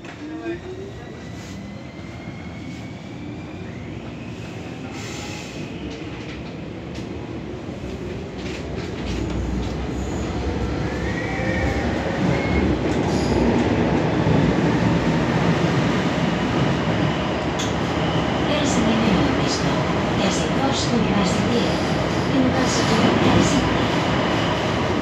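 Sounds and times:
metro train rumbling: 0.0s - 25.0s.

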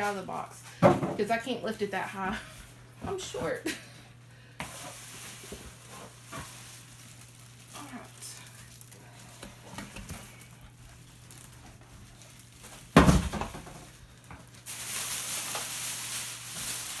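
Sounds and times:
plastic bag rustling and crinkling: 4.6s - 17.0s
heavy appliance thud on countertop: 13.0s - 13.8s.

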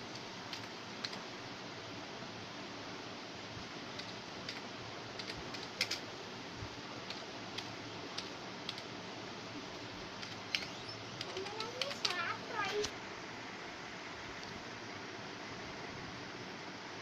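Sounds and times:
steady background hiss: 0.0s - 17.0s
keyboard keys clicking: 0.5s - 1.2s, 4.0s - 4.6s, 5.2s - 6.0s, 7.0s - 8.9s, 10.2s - 12.9s.

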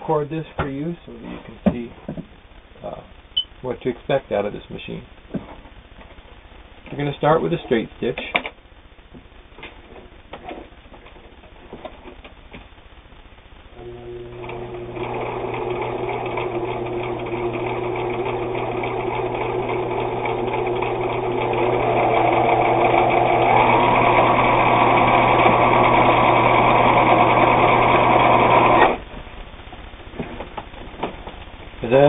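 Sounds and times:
sewing machine motor whirring: 13.8s - 29.0s.

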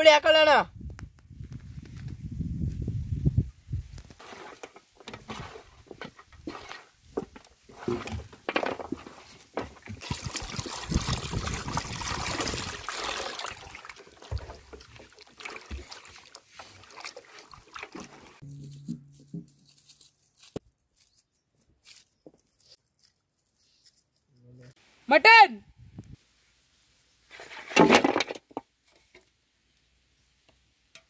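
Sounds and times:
water sloshing and trickling: 4.2s - 18.7s
water rushing: 9.9s - 18.4s.

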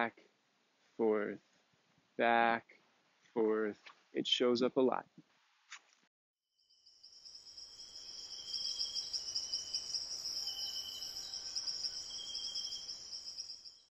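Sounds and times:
crickets and insects chirring: 6.6s - 13.9s.

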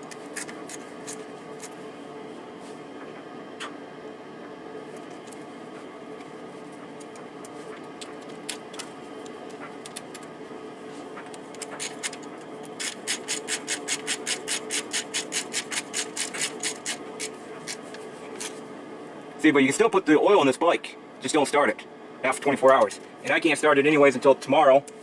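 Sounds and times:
steady hum: 0.0s - 25.0s
ratchet clicking: 12.8s - 17.0s.

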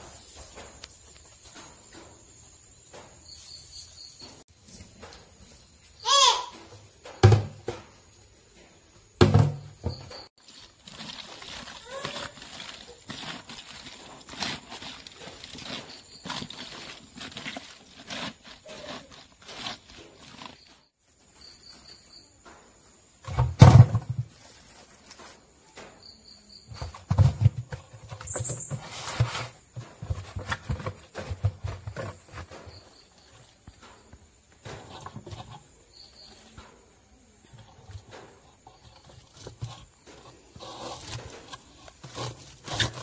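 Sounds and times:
fruit pieces rustling in plastic tub: 10.4s - 20.9s, 37.6s - 43.0s
insects trilling faintly: 20.0s - 23.4s, 24.0s - 42.9s.

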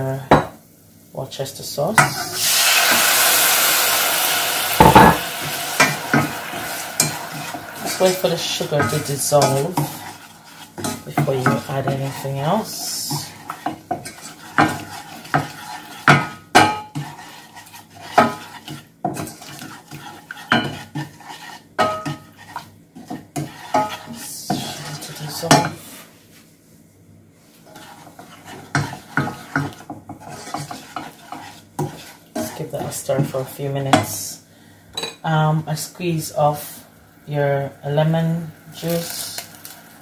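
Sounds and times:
wooden spoon stirring in saucepan: 4.8s - 26.4s, 27.4s - 34.4s.

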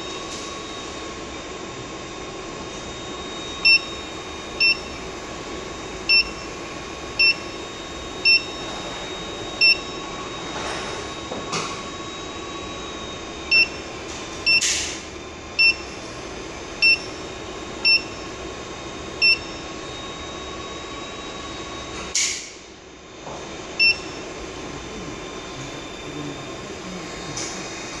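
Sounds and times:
cooling fan noise: 0.0s - 28.0s
short keypress beeps: 6.1s - 6.4s, 9.6s - 9.8s.

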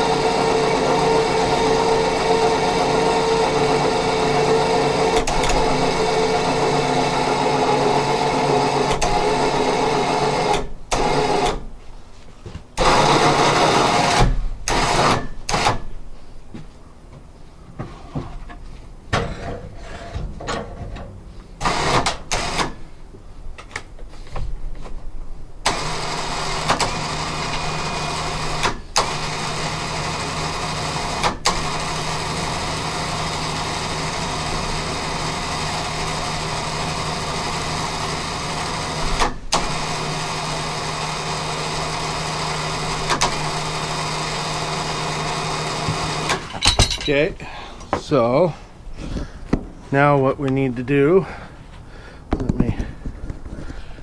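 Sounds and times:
electric winch humming: 0.0s - 11.6s, 12.8s - 15.8s, 25.6s - 46.7s.

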